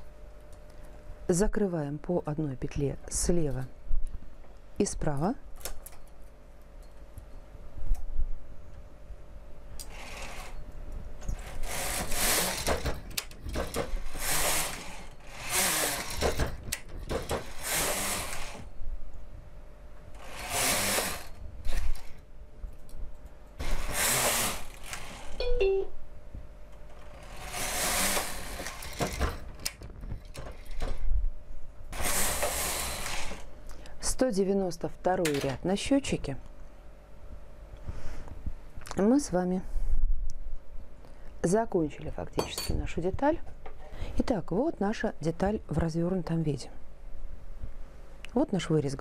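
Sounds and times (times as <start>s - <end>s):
knitting machine carriage rattling: 11.4s - 18.6s, 27.0s - 31.0s.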